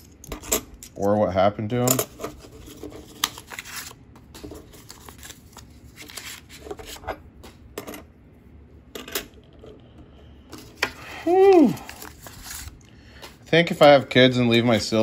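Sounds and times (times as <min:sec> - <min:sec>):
paper rustling: 0:02.3 - 0:07.0, 0:11.5 - 0:13.4.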